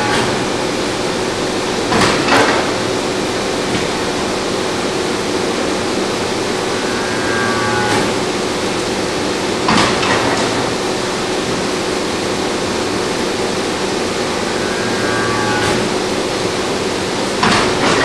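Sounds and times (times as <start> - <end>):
machine hum: 0.0 - 18.0
brief higher whine: 6.5 - 8.4, 14.1 - 16.0.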